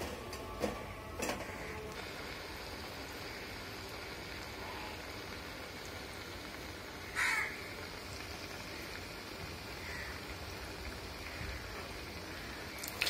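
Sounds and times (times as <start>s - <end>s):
food deep-frying in oil: 0.0s - 13.0s
crow caw: 7.0s - 7.6s, 9.8s - 10.2s, 11.3s - 11.7s, 12.3s - 12.7s.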